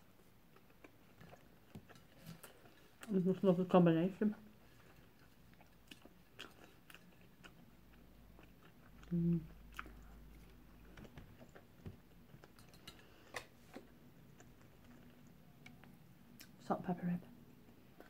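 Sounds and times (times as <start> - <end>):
person chewing food: 0.0 - 3.1, 4.5 - 16.6.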